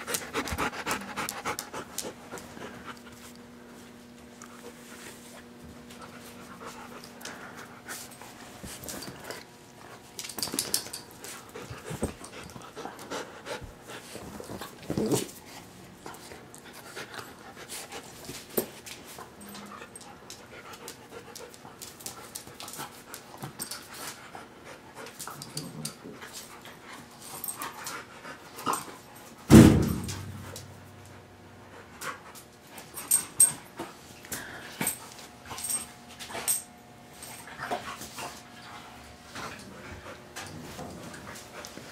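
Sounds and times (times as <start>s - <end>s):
dogs panting: 0.0s - 3.6s, 5.8s - 10.1s, 10.9s - 14.8s, 15.4s - 18.5s, 19.2s - 29.4s
loud thump: 29.5s - 30.5s.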